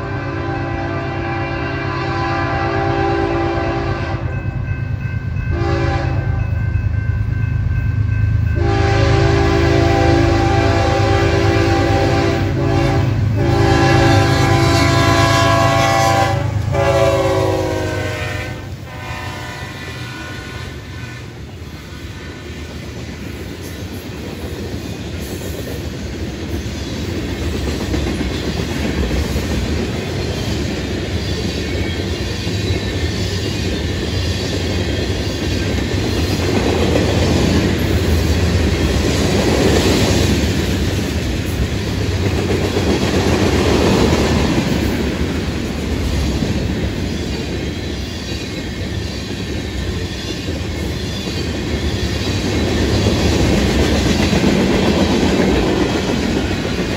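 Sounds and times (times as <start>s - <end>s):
freight train wheels on rail: 0.0s - 56.9s.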